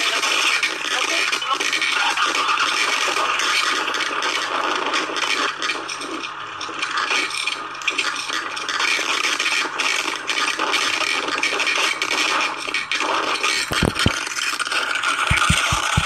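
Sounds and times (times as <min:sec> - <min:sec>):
microphone rubbing against fabric: 0:13.6 - 0:14.2, 0:15.3 - 0:16.0.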